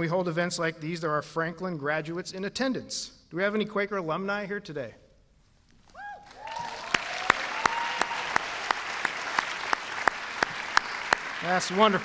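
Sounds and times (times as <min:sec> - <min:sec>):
audience cheering: 0:06.0 - 0:12.0
audience applauding: 0:06.2 - 0:12.0.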